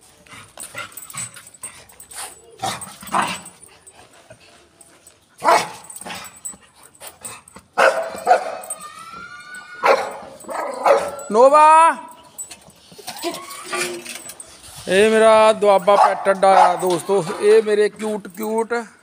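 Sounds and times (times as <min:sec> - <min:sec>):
dogs barking: 0:05.4 - 0:06.2, 0:07.8 - 0:08.8, 0:09.8 - 0:11.3, 0:15.8 - 0:17.5
dog whining: 0:08.2 - 0:11.3.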